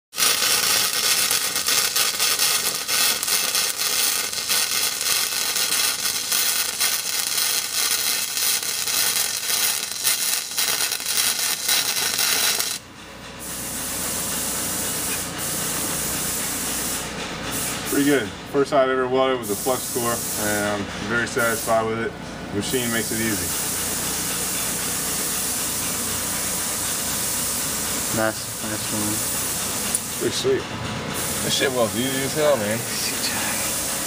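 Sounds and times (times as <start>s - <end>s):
steady hiss: 0.1s - 12.8s, 19.4s - 21.9s, 22.6s - 30.6s, 31.2s - 34.0s
welding arc crackle: 0.1s - 12.8s, 22.7s - 30.4s, 31.3s - 34.0s.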